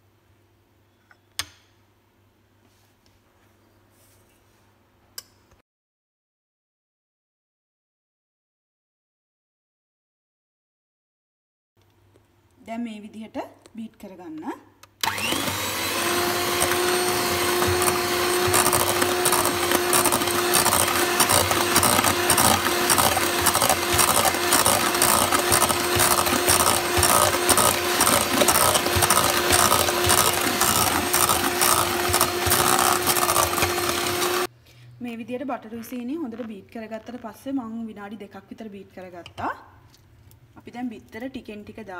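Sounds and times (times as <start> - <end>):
electric hand mixer whining: 15.0 - 34.5.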